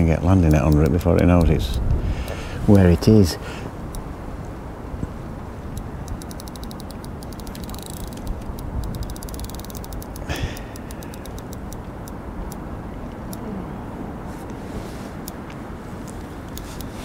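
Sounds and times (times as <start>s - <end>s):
rustle: 0.0s - 17.0s
steady low rumble: 0.0s - 17.0s
fishing reel clicking: 6.0s - 12.6s.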